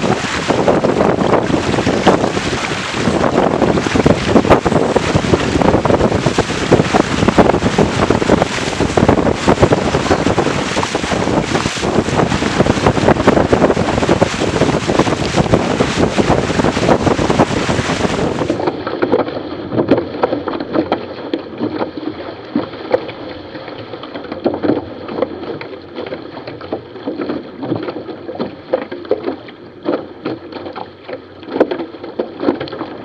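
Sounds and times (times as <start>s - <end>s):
wind buffeting microphone: 0.0s - 18.9s
choppy water splashing: 0.0s - 33.0s
water rushing past boat: 0.0s - 33.0s.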